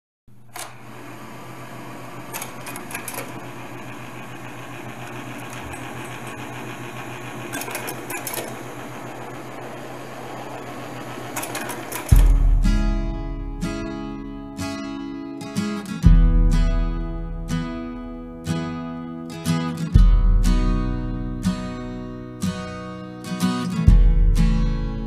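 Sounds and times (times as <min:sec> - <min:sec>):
fast mechanical clatter: 0:02.3 - 0:12.6
acoustic guitar music: 0:11.4 - 0:25.0.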